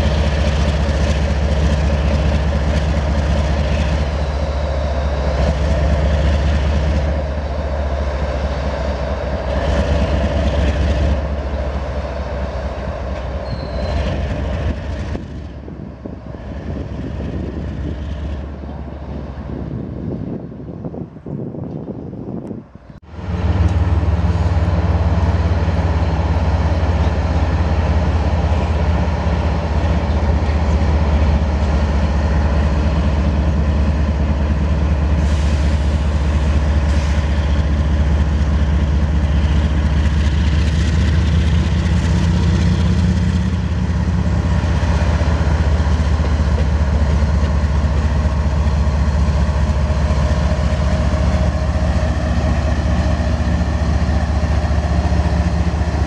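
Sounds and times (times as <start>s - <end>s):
diesel locomotive engine humming: 0.0s - 56.0s.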